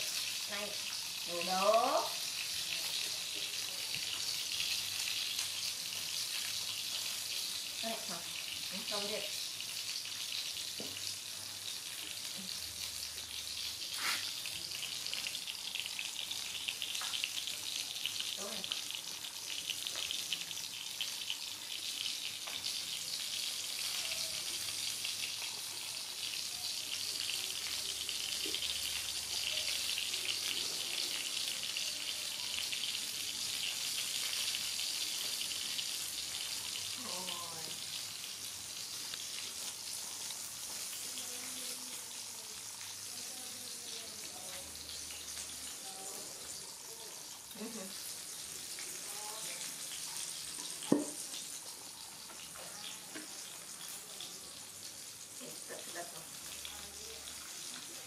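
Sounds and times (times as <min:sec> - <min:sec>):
crackling hiss: 0:10.8 - 0:19.0.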